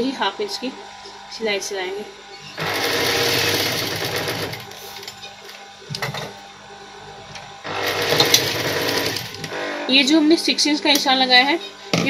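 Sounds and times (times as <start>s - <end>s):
sewing machine stitching: 2.6s - 4.8s, 7.7s - 9.6s.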